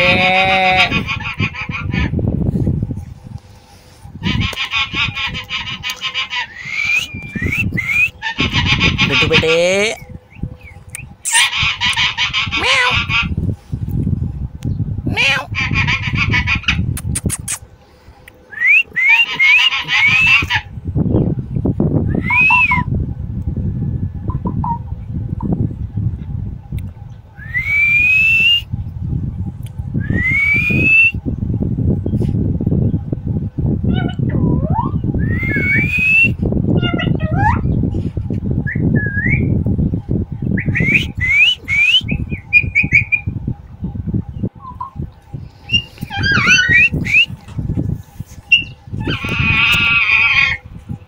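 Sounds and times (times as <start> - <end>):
parrot whistling: 6.4 - 8.5, 18.5 - 20.6, 22.1 - 22.9, 34.5 - 36.4, 40.6 - 43.3, 45.7 - 47.4
parakeet whistling: 40.6 - 43.3, 45.6 - 47.4.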